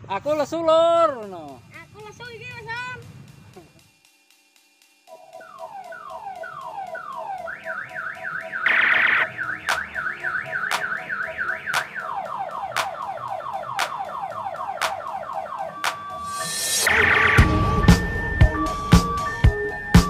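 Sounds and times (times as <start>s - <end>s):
electronic siren sweeping and warbling: 5.1s - 19.9s.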